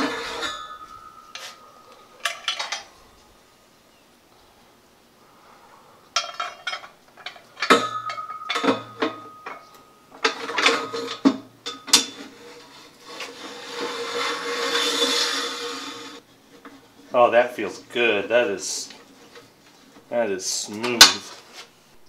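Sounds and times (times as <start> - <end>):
metal knocks and clanks: 0.0 - 3.0, 6.2 - 15.3
metal scraping on metal: 0.0 - 3.4, 5.2 - 17.1.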